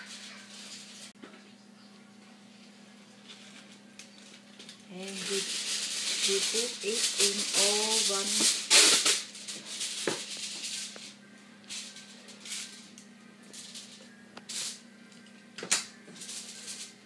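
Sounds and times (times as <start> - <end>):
foil and plastic crinkling: 3.2 - 12.9.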